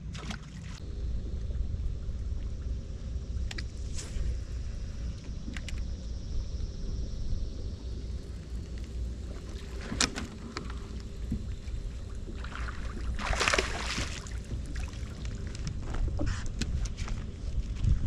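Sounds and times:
steady low rumble: 0.0 - 18.0
fish splashing at water surface: 12.3 - 15.2.

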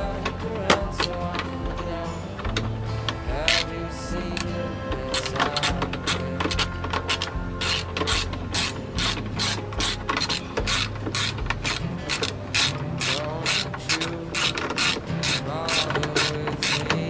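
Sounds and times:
ratchet wrench clicking: 3.5 - 3.7, 5.1 - 17.0.

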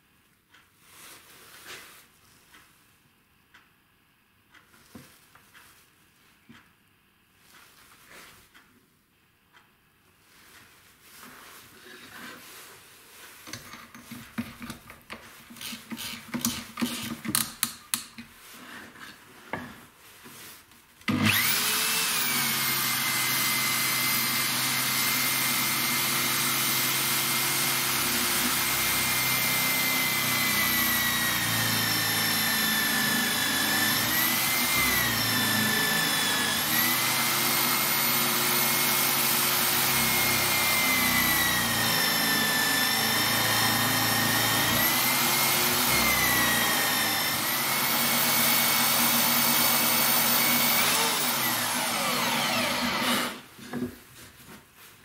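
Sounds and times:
drill whining into plywood: 15.6 - 17.2, 21.1 - 53.5.

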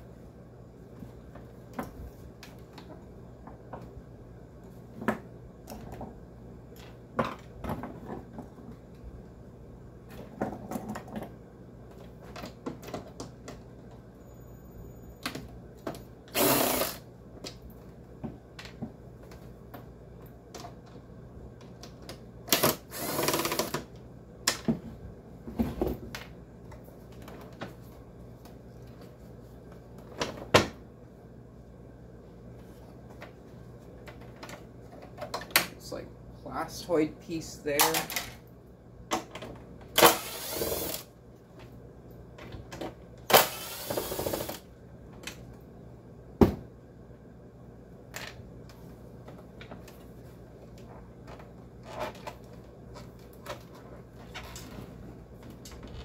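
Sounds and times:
clicks and knocks of handled parts: 33.1 - 35.8.

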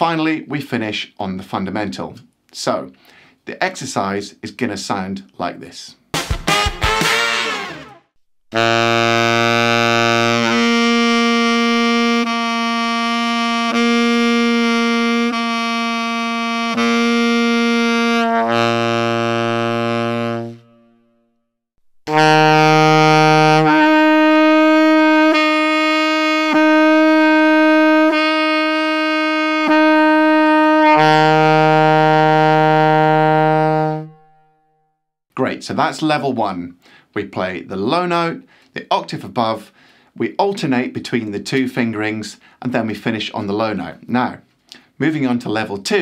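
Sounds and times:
alto saxophone playing: 6.3 - 21.3, 22.0 - 34.8
tenor saxophone playing: 6.3 - 21.3, 22.0 - 34.8.

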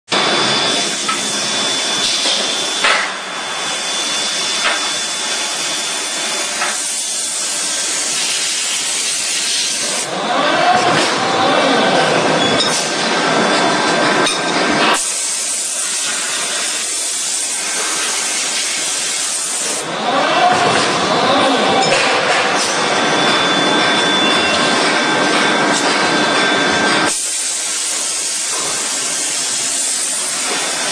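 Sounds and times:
high machine whine: 0.1 - 30.9
machinery hiss: 14.9 - 19.8, 27.1 - 30.9.

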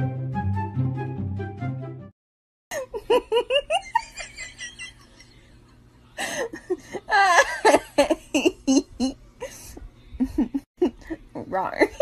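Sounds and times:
person laughing: 2.7 - 5.6, 6.2 - 11.3.

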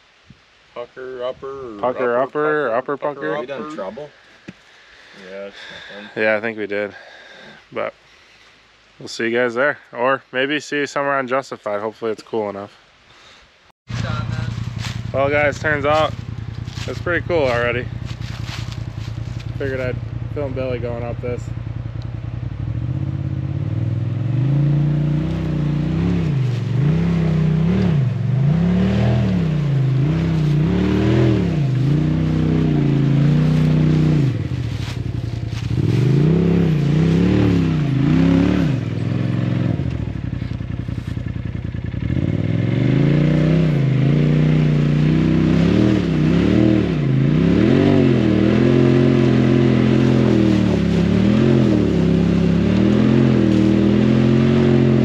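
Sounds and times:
engine revving in throttle bursts: 22.6 - 40.5, 41.8 - 55.0.

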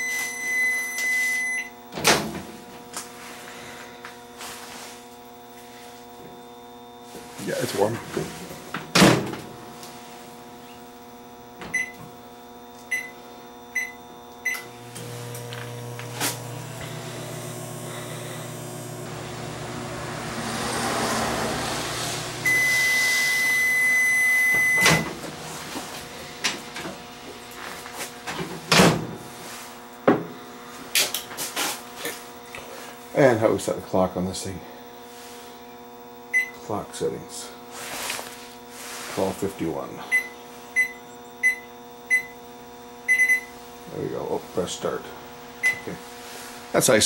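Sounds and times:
long beep: 0.0 - 1.7, 11.7 - 12.0, 12.9 - 14.7, 22.4 - 25.1, 40.1 - 42.4, 43.1 - 43.5
microwave oven humming: 0.0 - 47.0
keypad beeps: 40.1 - 42.3, 43.1 - 43.5.

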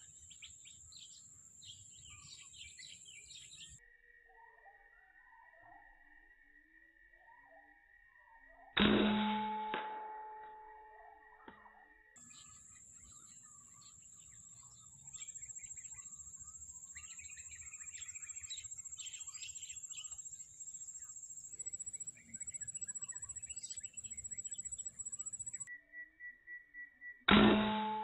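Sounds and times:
birds chirping: 0.0 - 3.8, 12.2 - 25.7
high-pitched pulsing whine: 15.2 - 25.7.

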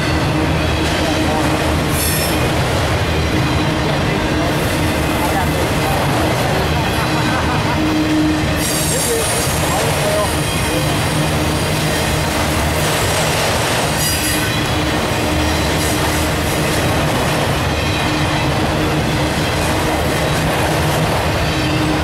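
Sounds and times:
high wheel squeal: 0.0 - 16.7, 21.3 - 22.0
freight cars rolling on rails: 0.0 - 22.0.

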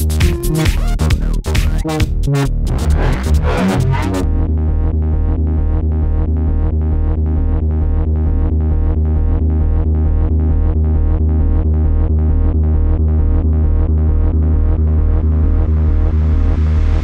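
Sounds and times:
electronic dance music: 0.0 - 4.4.

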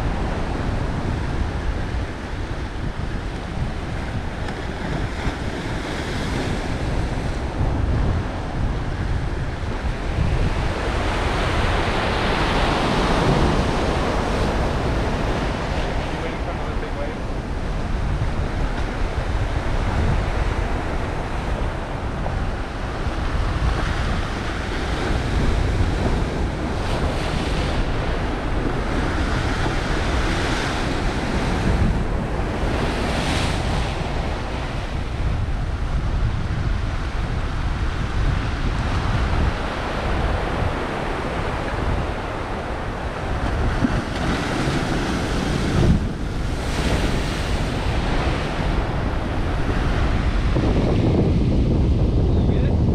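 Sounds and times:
wind buffeting microphone: 0.0 - 52.9
surf breaking on rocks: 36.7 - 52.8.

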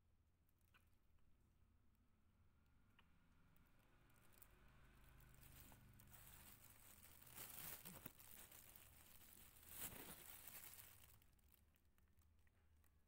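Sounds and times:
faint rustling: 4.2 - 11.7.

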